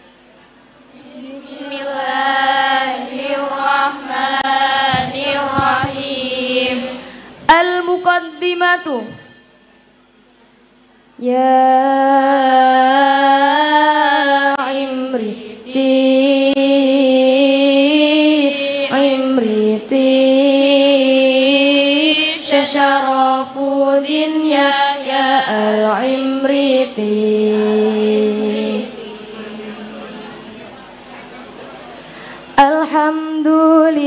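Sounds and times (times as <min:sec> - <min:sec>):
group of girls chanting: 0:00.9 - 0:07.1, 0:21.7 - 0:26.9.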